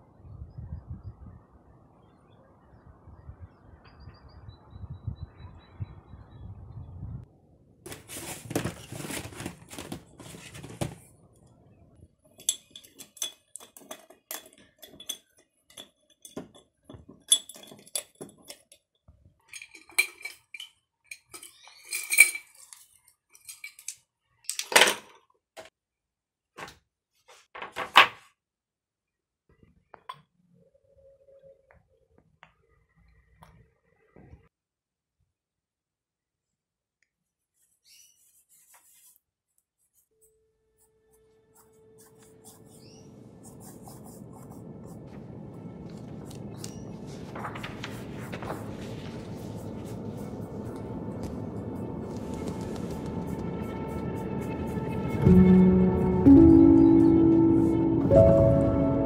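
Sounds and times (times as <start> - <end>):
rustling: 7.9 - 11.1, 45.9 - 54.0
paintbrushes clinking in glass jars: 12.3 - 24.7.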